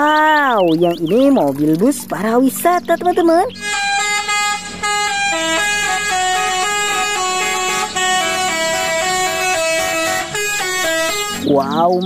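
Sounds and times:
bus musical horn tune: 0:03.5 - 0:11.6.

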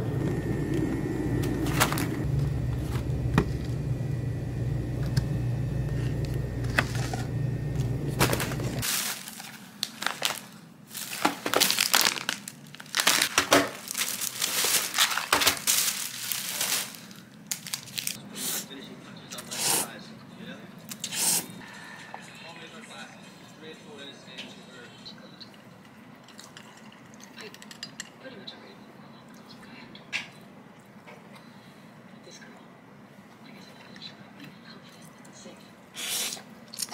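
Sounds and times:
steady low hum: 0:00.0 - 0:08.9
plastic bag crinkling: 0:01.6 - 0:03.1, 0:08.1 - 0:18.2.

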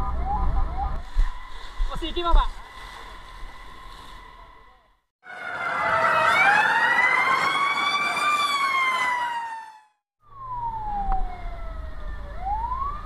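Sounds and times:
fire engine siren wailing: 0:00.0 - 0:02.0, 0:04.3 - 0:13.0
noisy rush: 0:00.0 - 0:08.7.

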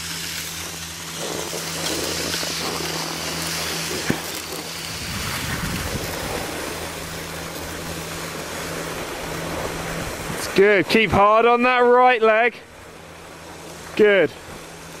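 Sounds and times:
wind rushing on microphone: 0:03.9 - 0:07.9, 0:08.8 - 0:11.2.

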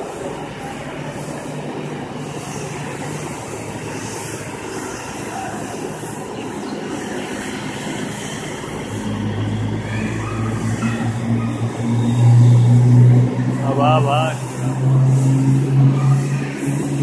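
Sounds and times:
jet engines rushing: 0:00.0 - 0:17.0
deep steady hum: 0:07.7 - 0:17.0.

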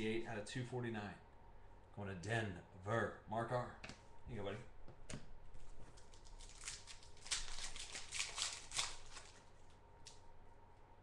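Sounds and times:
foil wrapper crinkling and tearing: 0:06.0 - 0:09.7.

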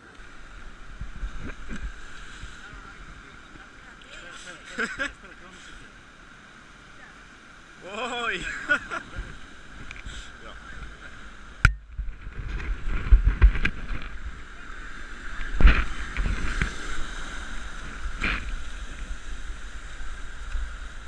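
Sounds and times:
wind rumbling on microphone: 0:00.0 - 0:04.0, 0:08.4 - 0:21.0
surf breaking against rocks: 0:00.0 - 0:21.0.

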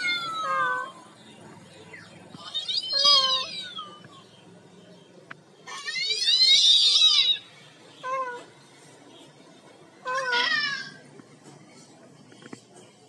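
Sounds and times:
recorded cat meows from phone: 0:00.0 - 0:00.9, 0:02.4 - 0:04.1.

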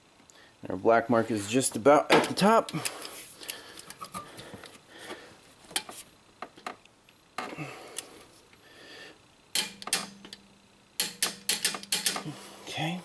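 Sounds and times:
torque wrench ratchet clicking: 0:11.0 - 0:12.2.

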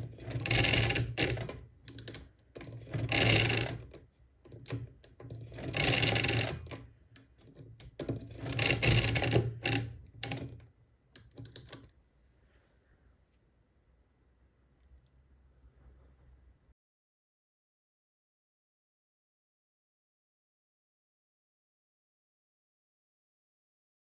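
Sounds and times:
calculator mechanism clicks: 0:00.0 - 0:10.6
hand-cranked calculator gears clattering: 0:00.0 - 0:10.6.

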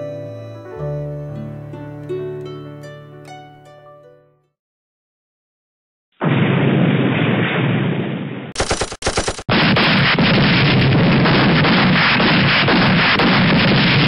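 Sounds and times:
explosion: 0:06.2 - 0:14.0
machine-gun fire: 0:08.6 - 0:14.0.

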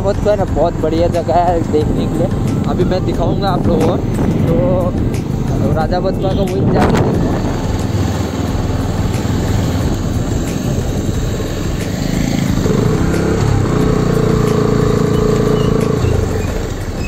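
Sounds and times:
motorcycle engine running: 0:00.0 - 0:17.0
wind and road rush: 0:00.0 - 0:17.0.

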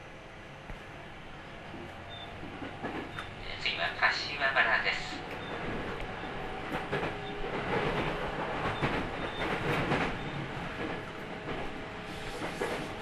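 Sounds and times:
train wheels rumbling on rail: 0:00.0 - 0:13.0
rail joint clicks: 0:00.6 - 0:13.0.

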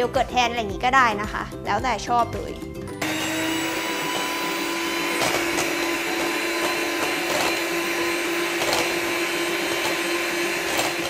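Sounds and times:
electric hand mixer whirring: 0:03.0 - 0:11.0.

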